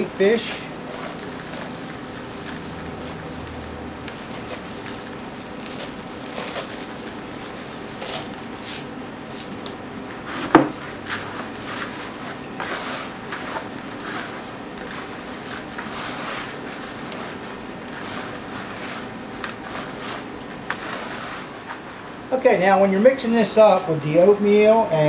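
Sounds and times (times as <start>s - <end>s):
wet squishing and scraping in bucket: 0.0s - 8.9s, 11.0s - 21.9s
steady hum: 0.0s - 25.0s.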